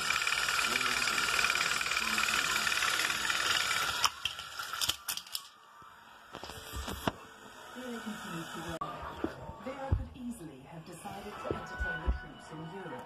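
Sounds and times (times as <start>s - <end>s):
toy train motor whirring: 0.0s - 5.5s
plastic toy clicks and clatters: 1.3s - 5.6s.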